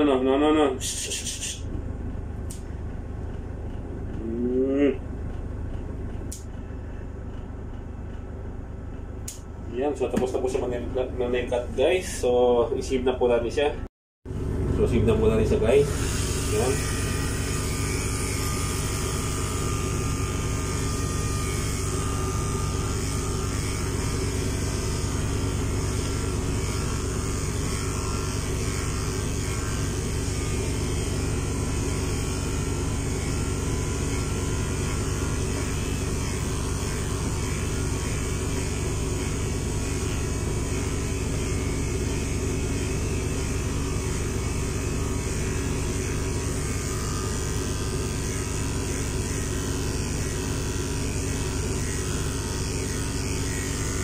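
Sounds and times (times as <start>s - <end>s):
electric pet clipper running: 2.1s - 5.0s, 14.4s - 54.0s.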